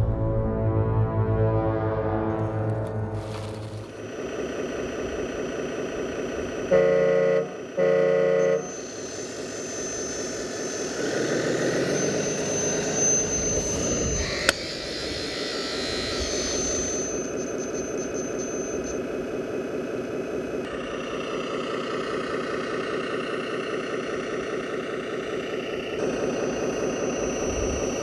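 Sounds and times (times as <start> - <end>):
engine-like rumble: 0.0 - 28.0
horn blasts: 0.5 - 4.0, 6.7 - 10.0
hydraulic pump whine: 2.3 - 28.0.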